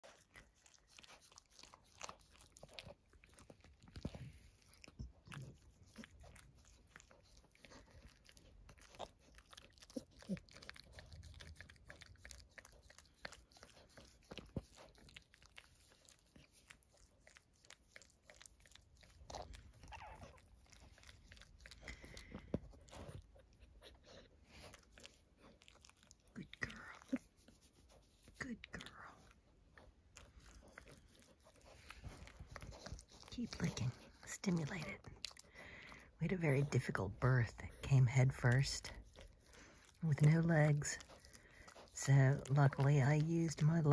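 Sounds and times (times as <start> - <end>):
dog licking wet clicks: 38.3 - 43.9.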